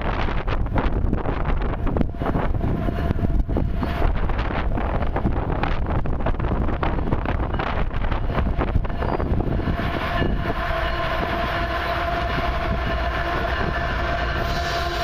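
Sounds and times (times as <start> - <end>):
train rumble: 0.0 - 15.0
wind buffeting microphone: 0.0 - 15.0
locomotive horn blast: 8.6 - 15.0.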